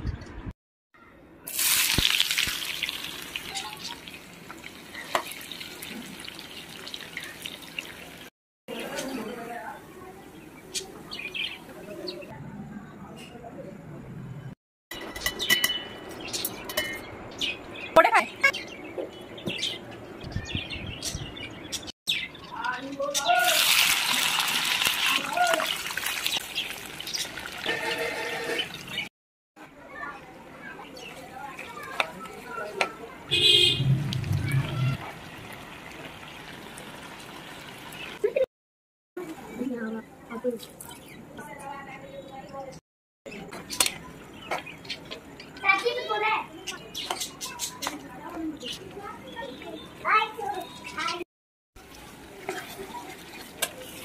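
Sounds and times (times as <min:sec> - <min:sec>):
onions sizzling in hot oil: 0:01.5 - 0:08.3, 0:23.4 - 0:28.0.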